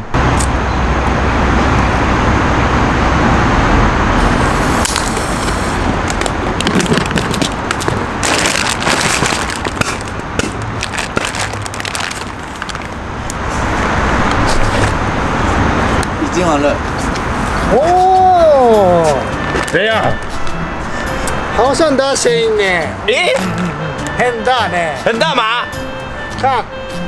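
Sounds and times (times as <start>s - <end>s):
firecrackers crackling in a bucket: 4.6s - 13.0s.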